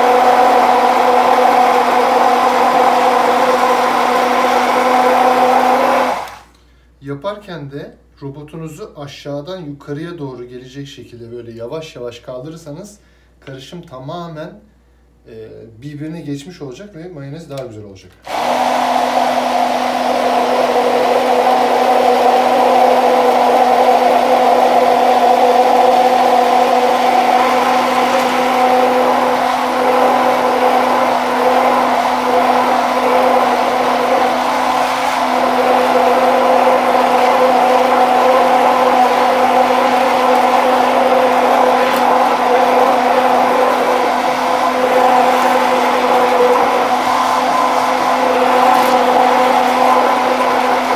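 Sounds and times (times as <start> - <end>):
stick blender motor hum: 0.0 - 6.5, 18.3 - 50.9.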